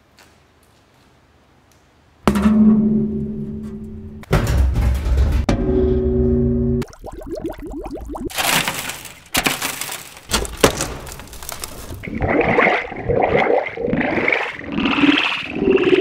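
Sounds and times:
water sloshing and bubbling: 0:06.8 - 0:16.0
brittle debris cracking: 0:08.1 - 0:12.1
warbling synthesizer tones: 0:12.1 - 0:16.0.

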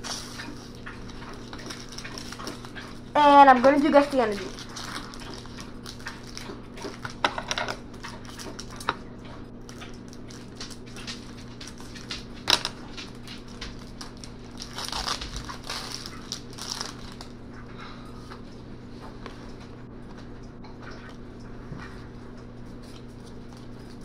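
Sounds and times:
foil wrapper crinkling and tearing: 0:00.0 - 0:03.1, 0:04.5 - 0:08.8, 0:09.6 - 0:17.4
cards rustling: 0:13.4 - 0:17.3.

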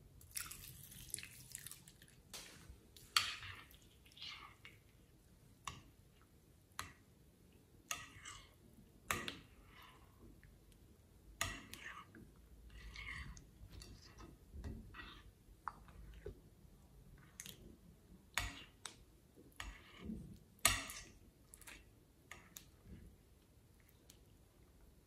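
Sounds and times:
slime squelching: 0:00.2 - 0:04.7.

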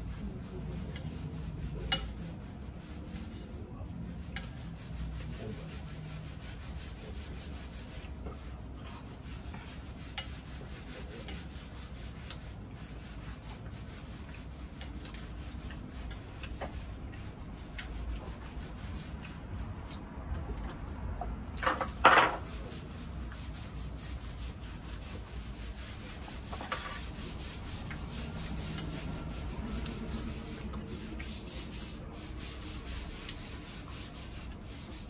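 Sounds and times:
low room rumble: 0:00.0 - 0:35.0
cutlery clicks and scrapes: 0:01.9 - 0:02.2.

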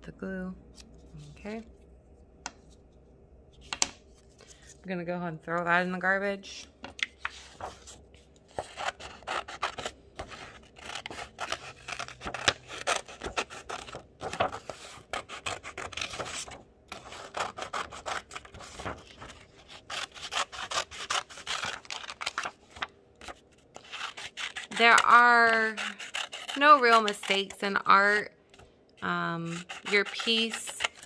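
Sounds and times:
scissors cutting paper: 0:08.5 - 0:28.2, 0:29.0 - 0:31.0.

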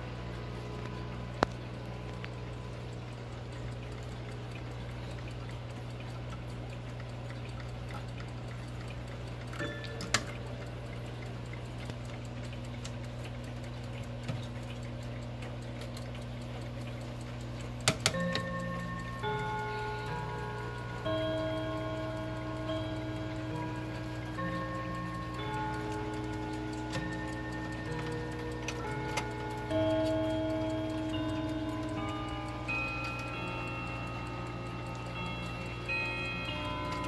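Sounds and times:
steady low hum: 0:00.0 - 0:37.0
clocks ticking: 0:00.2 - 0:37.0
clock chime ringing: 0:09.6 - 0:10.9, 0:17.8 - 0:37.0
sharp clicks of clocks handled: 0:17.8 - 0:19.3.

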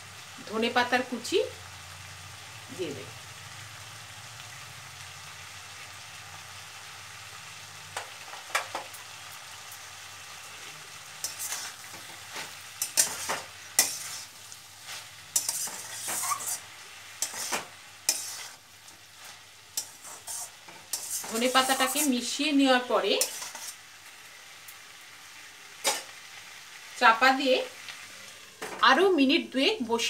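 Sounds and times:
vegetables sizzling in a pan: 0:00.0 - 0:30.0
spatula scraping steel pan: 0:11.2 - 0:18.6, 0:19.2 - 0:22.2, 0:23.1 - 0:23.8.

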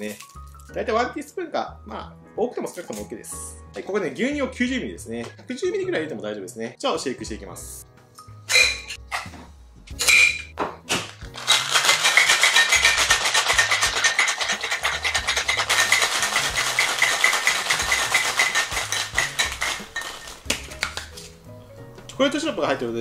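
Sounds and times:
ice rattling in cocktail shaker: 0:00.0 - 0:00.7, 0:11.2 - 0:21.0
metal shaker clanks: 0:11.3 - 0:21.0.

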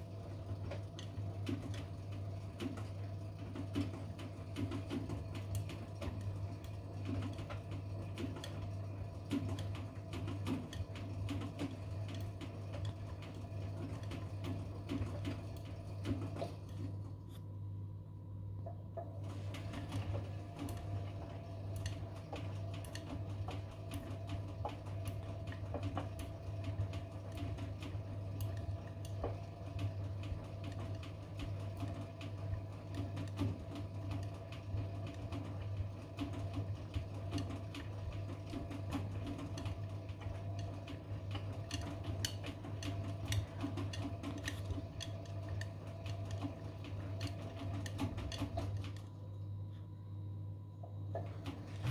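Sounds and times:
washing machine motor hum: 0:00.0 - 0:51.9
clothes sloshing in drum: 0:51.2 - 0:51.9.

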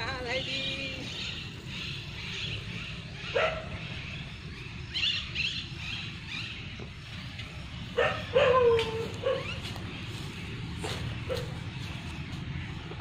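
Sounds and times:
dog yelping: 0:03.3 - 0:03.8, 0:08.0 - 0:09.6.

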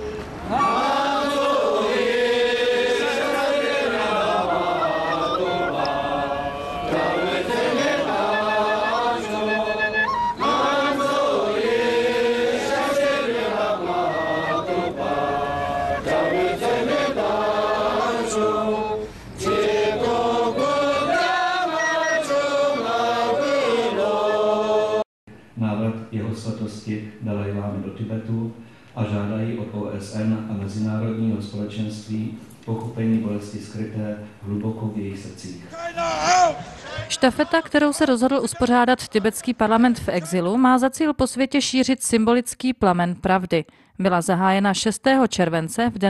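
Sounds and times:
melodic vocal chanting: 0:00.4 - 0:25.0.

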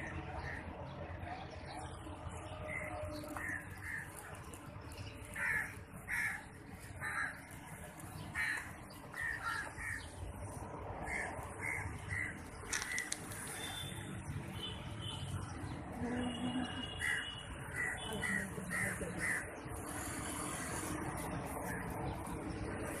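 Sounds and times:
crows cawing: 0:02.7 - 0:04.4, 0:05.3 - 0:07.6, 0:08.2 - 0:10.2, 0:11.0 - 0:13.9, 0:16.9 - 0:21.0.

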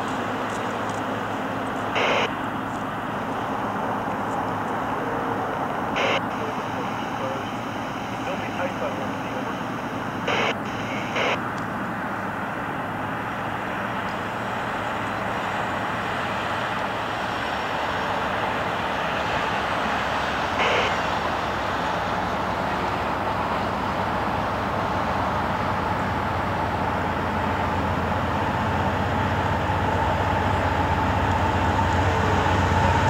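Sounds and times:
locomotive engine drone: 0:00.0 - 0:33.0
high-pitched bursts: 0:02.0 - 0:02.3, 0:05.6 - 0:11.4.

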